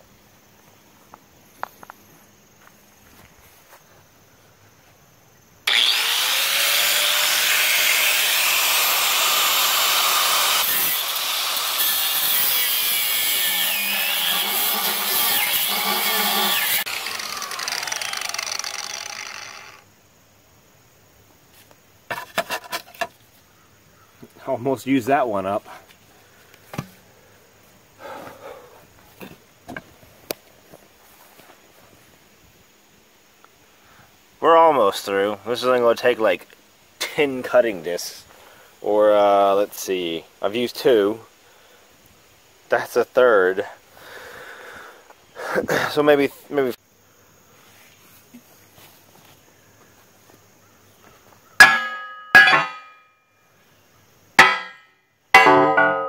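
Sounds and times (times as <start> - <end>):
angle grinder cutting steel: 5.7 - 19.8.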